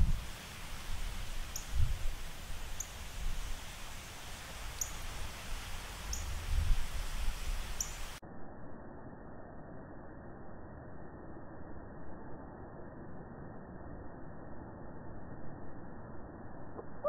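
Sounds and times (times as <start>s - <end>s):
dull muffled hiss: 0.0s - 8.2s
wind rumbling on microphone: 0.0s - 8.2s
bird chirping: 0.4s - 6.4s, 7.5s - 8.2s.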